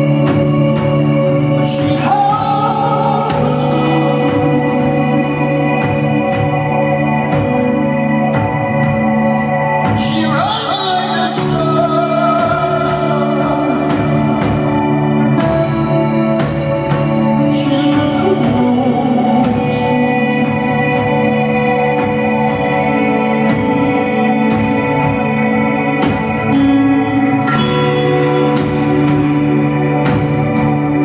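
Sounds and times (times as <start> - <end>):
man singing: 0.0 - 8.1, 9.7 - 16.3, 17.0 - 25.0
electric guitar: 0.0 - 31.0
organ-like keyboard chords: 0.0 - 31.0
steady drum beat: 0.0 - 31.0.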